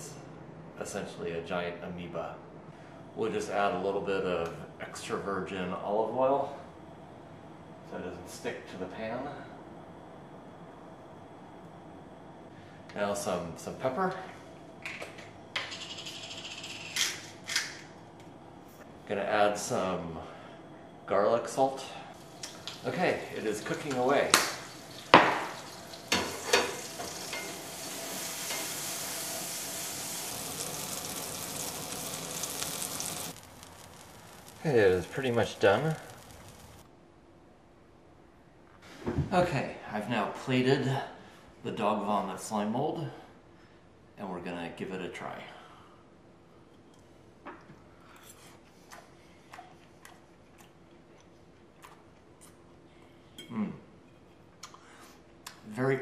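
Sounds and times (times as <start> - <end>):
slime mold sizzling in oil: 22.1 - 36.9.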